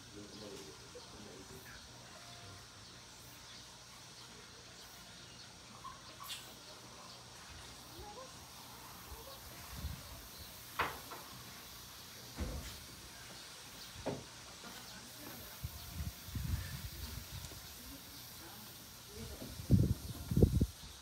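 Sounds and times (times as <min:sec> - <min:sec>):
faint chirp: 0:00.3 - 0:10.7.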